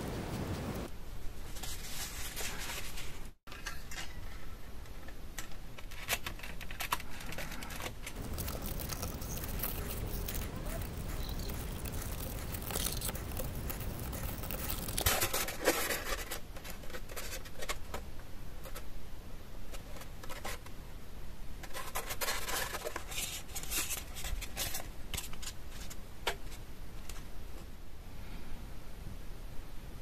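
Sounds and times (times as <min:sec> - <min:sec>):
foam rubbed by hands: 0:08.2 - 0:15.2.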